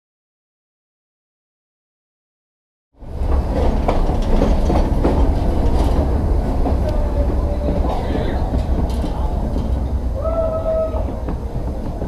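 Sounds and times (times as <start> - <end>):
train rumbling on track: 3.0 - 12.0
wheels clicking and clattering: 3.0 - 12.0.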